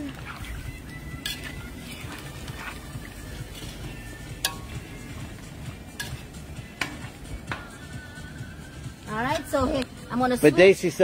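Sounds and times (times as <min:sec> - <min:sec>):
spoon stirring in metal pot: 0:00.1 - 0:07.7
spoon clinking against pot: 0:01.1 - 0:02.2, 0:04.3 - 0:05.0, 0:05.9 - 0:07.0.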